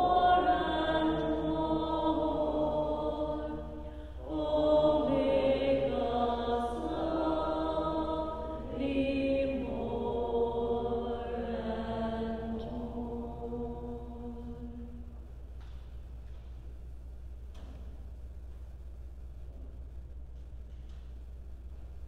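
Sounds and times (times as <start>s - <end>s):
slow sacred chant-like music: 0.0s - 16.0s.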